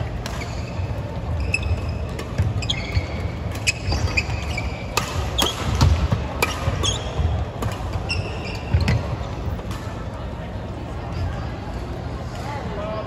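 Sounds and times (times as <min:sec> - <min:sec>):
racket hitting shuttlecock: 0:00.2 - 0:00.8, 0:02.1 - 0:08.2
shoes squeaking on wooden floor: 0:00.4 - 0:04.9.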